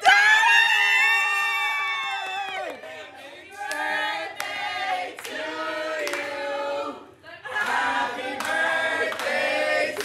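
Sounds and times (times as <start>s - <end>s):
group of voices singing: 3.1s - 10.0s
hand claps: 7.6s - 9.4s.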